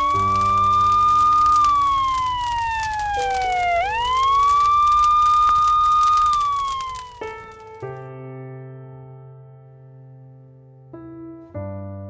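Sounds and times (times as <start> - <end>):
siren wailing: 0.0 - 7.6.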